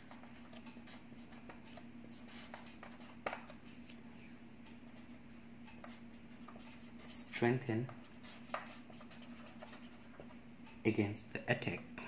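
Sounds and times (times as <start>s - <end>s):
marker scratching on whiteboard: 0.0s - 3.6s, 4.8s - 10.4s
steady low hum: 0.0s - 12.0s.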